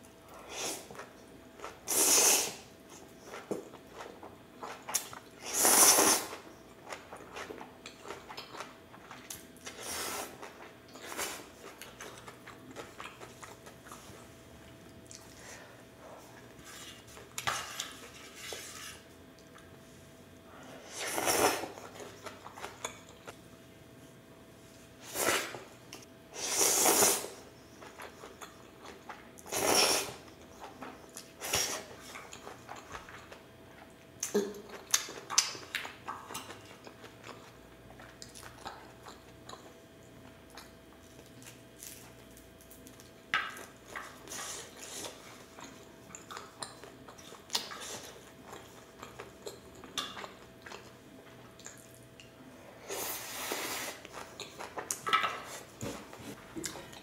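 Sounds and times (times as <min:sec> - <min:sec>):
chewing: 0:10.4 - 0:15.4, 0:30.4 - 0:52.3, 0:54.0 - 0:55.7.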